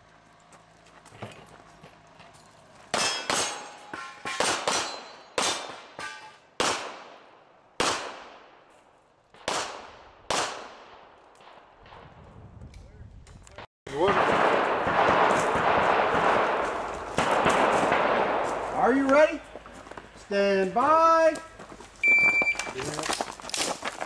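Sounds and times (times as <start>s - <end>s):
pistol shots: 2.9s - 8.7s, 9.3s - 12.0s, 14.0s - 19.1s.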